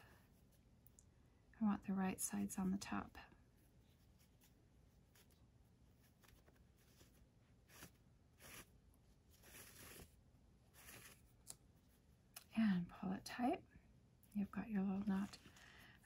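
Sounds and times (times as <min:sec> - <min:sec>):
fabric rustling: 0:03.7 - 0:12.1.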